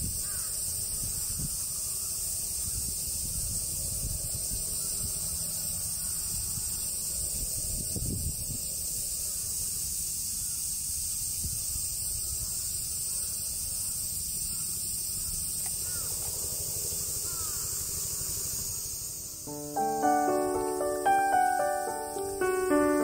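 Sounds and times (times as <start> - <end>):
insects droning: 0.0 - 23.0
piano music: 19.2 - 23.0.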